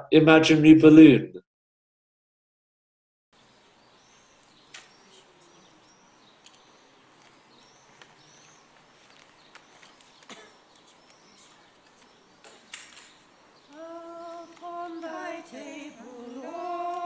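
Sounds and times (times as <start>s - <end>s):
small birds chirping: 3.4s - 17.0s.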